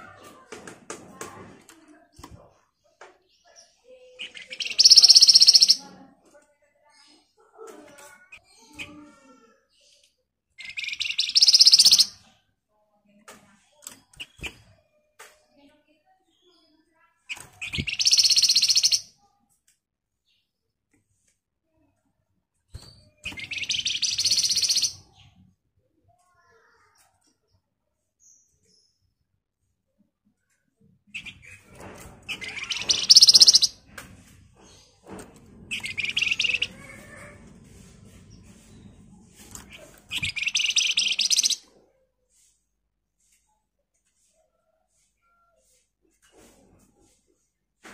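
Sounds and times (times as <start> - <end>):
soft bird calls: 2.4 - 5.9, 8.1 - 12.3, 16.4 - 19.1, 22.8 - 25.5, 31.1 - 34.0, 35.7 - 42.6
bird rattling trill: 4.3 - 5.8, 10.8 - 12.2, 17.6 - 19.0, 23.3 - 25.0, 32.3 - 33.8, 35.7 - 37.3, 39.6 - 41.6.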